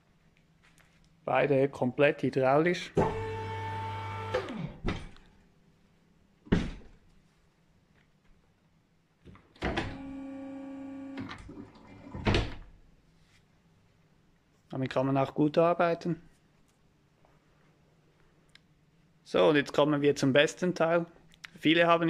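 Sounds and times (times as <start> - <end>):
electric pump hum: 3.0 - 4.8, 9.8 - 11.8.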